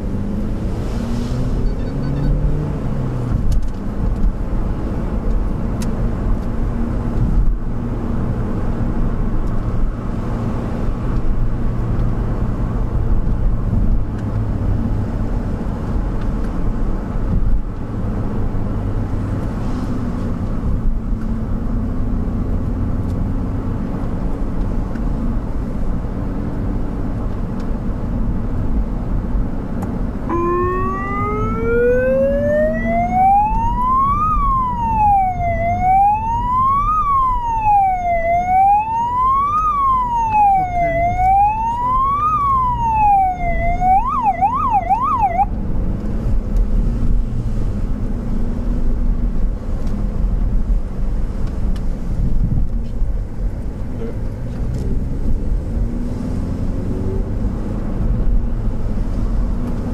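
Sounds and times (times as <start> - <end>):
engine and road noise: 0.0 - 59.9
electronic siren wailing: 30.3 - 45.5.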